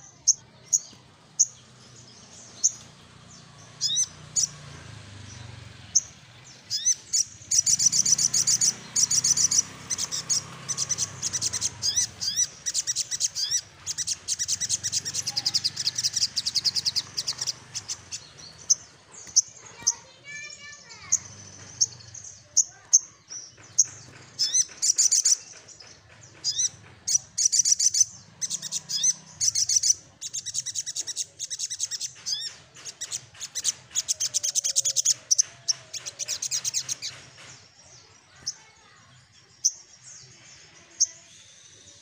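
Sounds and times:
bird singing fast high trills: 0:00.0 - 0:22.8.

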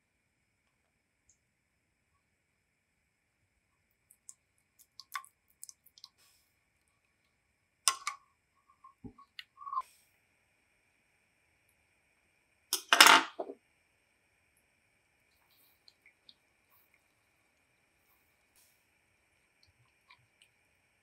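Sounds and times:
utensils clicking in a saucepan: 0:07.9 - 0:08.2.

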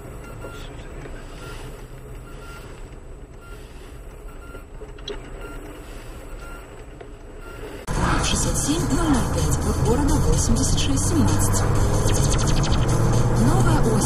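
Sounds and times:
vehicle warning beeper: 0:00.0 - 0:02.8, 0:03.4 - 0:11.5
engine and road noise: 0:00.0 - 0:14.0.

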